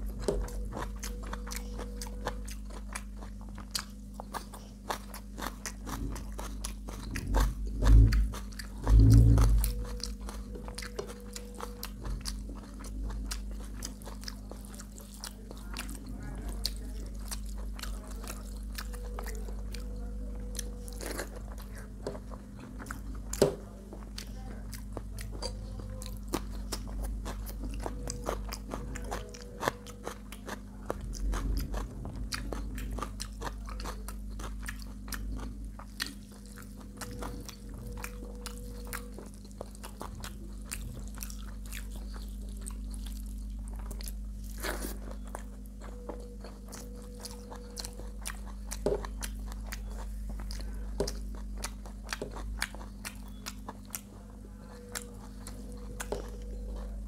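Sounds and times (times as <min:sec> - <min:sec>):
person chewing food: 0:00.0 - 0:57.0
steady low hum: 0:00.0 - 0:57.0
food crunches: 0:24.1 - 0:57.0.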